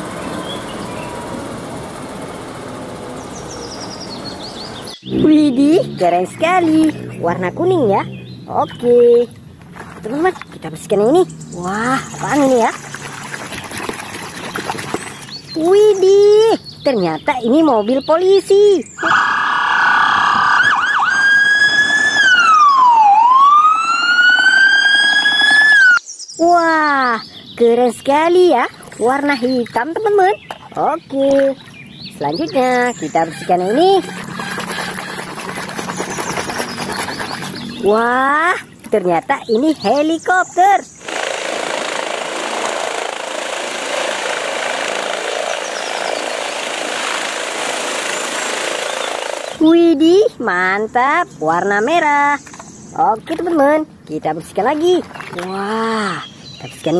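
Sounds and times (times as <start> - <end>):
helicopter hovering: 0.0 - 4.3, 4.9 - 9.2, 9.9 - 26.0, 28.1 - 38.7, 39.5 - 52.6
police siren yelps and wail: 19.0 - 26.0.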